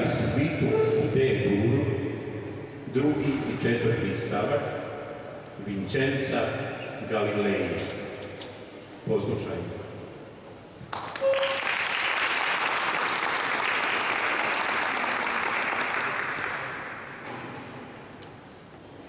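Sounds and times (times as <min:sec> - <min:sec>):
audience applauding: 0:10.9 - 0:17.2.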